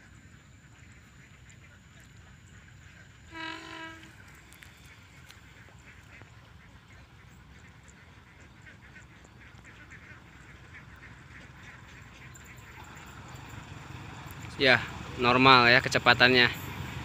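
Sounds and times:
low steady rumble: 0.0s - 17.0s
faint short calls: 2.9s - 7.0s
horn blast: 3.3s - 4.4s.

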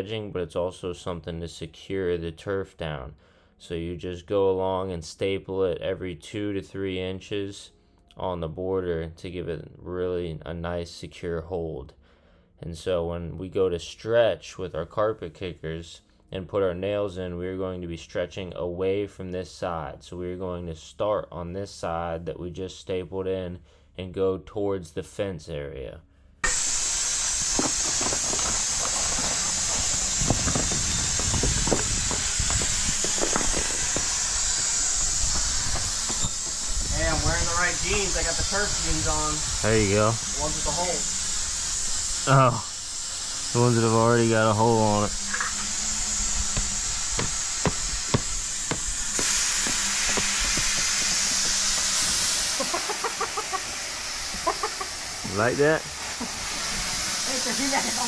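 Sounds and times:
loud steady hiss: 26.4s - 58.0s
hammer driving nails: 30.2s - 34.2s, 46.6s - 51.1s.

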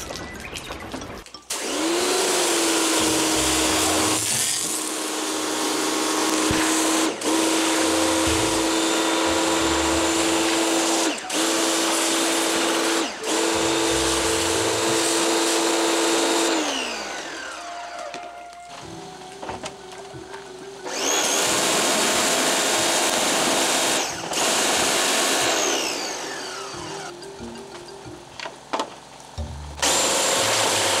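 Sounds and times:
pressure washer motor hum: 1.5s - 27.1s, 29.4s - 31.0s
water jet spraying: 1.5s - 27.1s, 29.8s - 31.0s.

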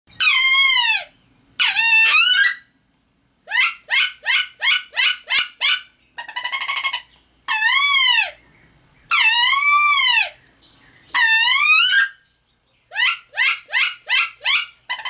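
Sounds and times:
duck call squeals and chirps: 0.1s - 2.7s, 3.5s - 8.4s, 9.1s - 10.4s, 11.1s - 12.2s, 12.9s - 15.0s.

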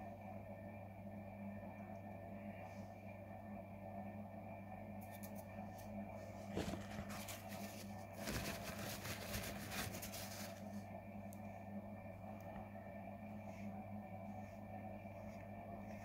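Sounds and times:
steady hum: 0.0s - 16.0s
paper towel crinkling: 6.4s - 10.8s.

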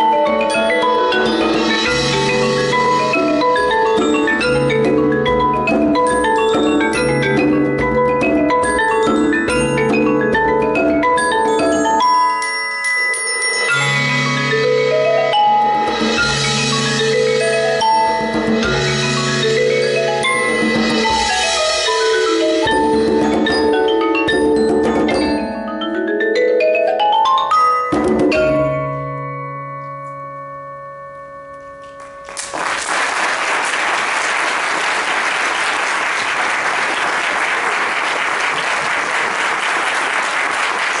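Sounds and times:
mallet percussion ensemble: 0.0s - 41.0s
audience applause: 32.2s - 41.0s.

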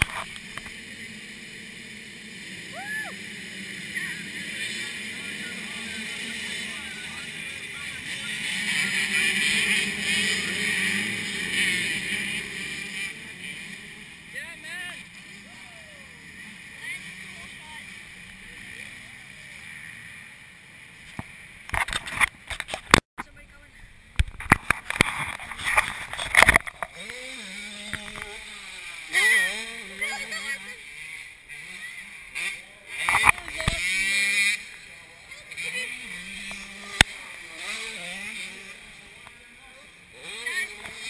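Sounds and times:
steady pitched drone: 0.0s - 21.6s
dirt bike engines revving: 0.0s - 41.0s.

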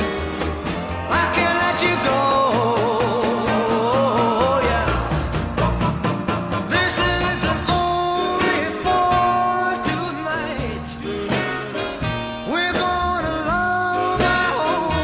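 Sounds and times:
person singing long sliding notes: 0.0s - 12.0s
accompanying instruments: 0.0s - 12.6s
steady drum beat: 0.0s - 15.0s.

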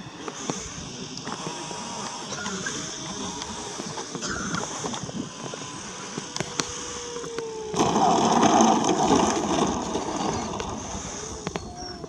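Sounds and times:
model plane motor whine: 0.0s - 12.0s
model plane rolling over grass: 5.0s - 12.0s.

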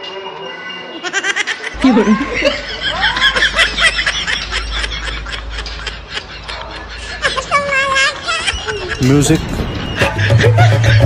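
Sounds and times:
high-pitched laughter: 1.0s - 9.4s.

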